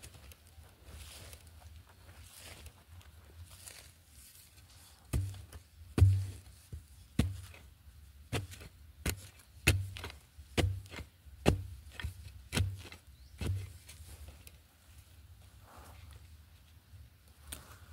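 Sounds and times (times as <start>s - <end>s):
spade chopping into soil: 5.1s - 6.5s, 8.3s - 13.9s.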